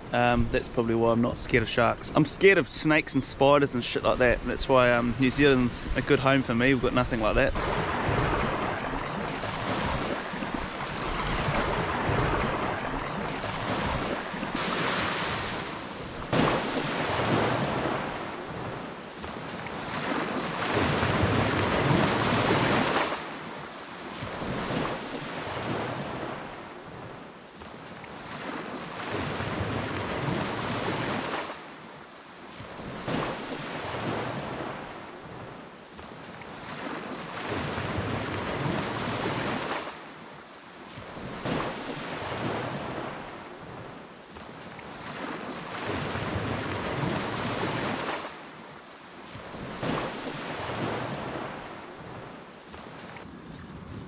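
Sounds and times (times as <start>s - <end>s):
waves washing onto beach: 0.0s - 54.0s
wind buffeting microphone: 7.4s - 19.5s, 53.2s - 54.0s.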